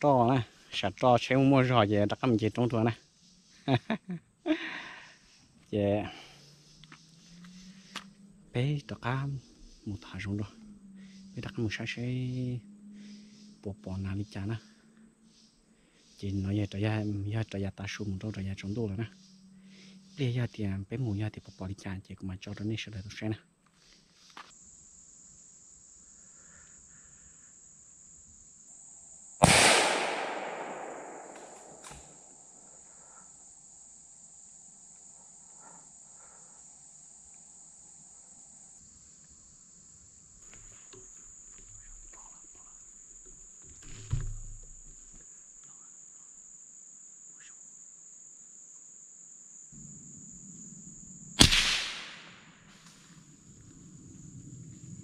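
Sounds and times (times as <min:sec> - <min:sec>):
high-pitched insect drone: 0:01.3 - 0:21.8, 0:32.7 - 0:51.5
gunshots echoing: 0:29.4 - 0:32.1, 0:51.4 - 0:52.4.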